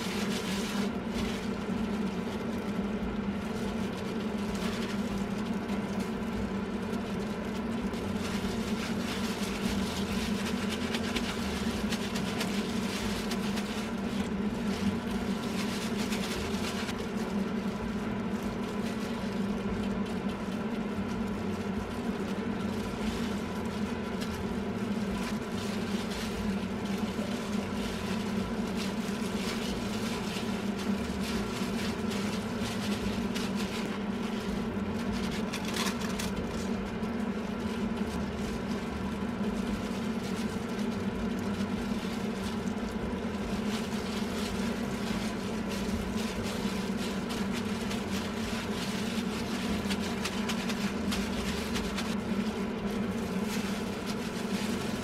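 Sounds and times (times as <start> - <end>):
machine hum: 0.0 - 55.0
plastic gloves crinkling: 0.0 - 55.0.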